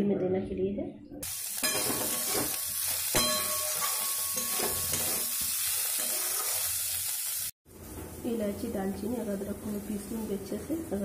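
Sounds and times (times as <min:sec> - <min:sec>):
vegetables sizzling in hot oil: 0:01.2 - 0:11.0
sharp metal clink: 0:03.1 - 0:05.1.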